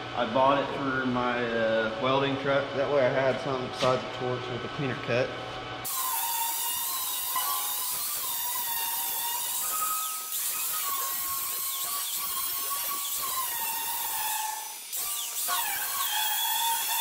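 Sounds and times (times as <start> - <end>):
angle grinder grinding steel: 5.9 - 17.0.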